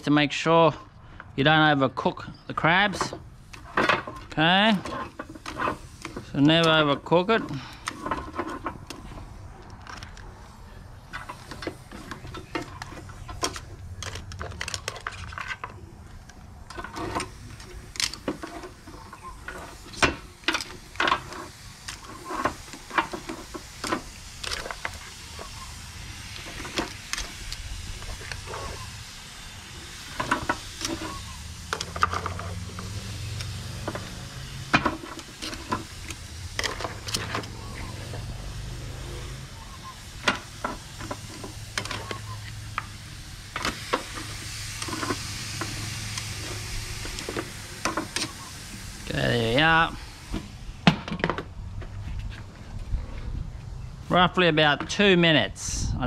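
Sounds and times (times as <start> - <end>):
steady sizzling hiss: 0.0 - 56.0
metal tongs clacking on grill: 11.0 - 28.9, 29.9 - 38.3.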